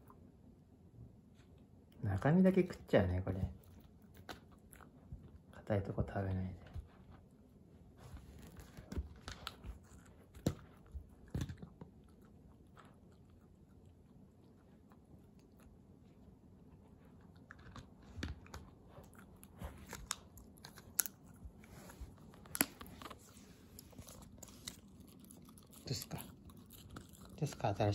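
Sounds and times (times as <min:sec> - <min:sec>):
puppy chewing hard treat: 0:08.0 - 0:27.9.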